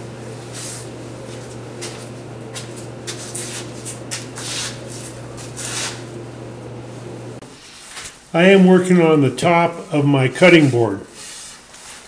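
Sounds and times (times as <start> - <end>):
low electrical hum: 0.0 - 12.0
rustling and scraping handling noises: 0.4 - 6.1.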